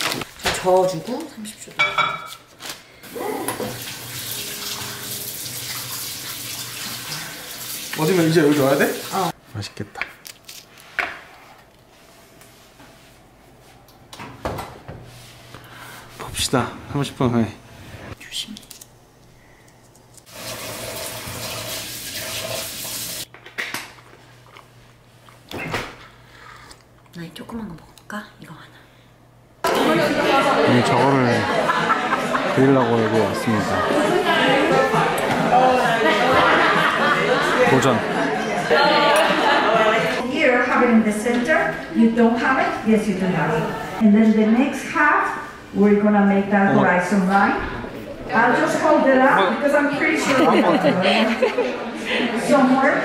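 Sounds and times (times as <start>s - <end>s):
kitchen tap running: 3.1s - 9.3s, 20.3s - 23.3s.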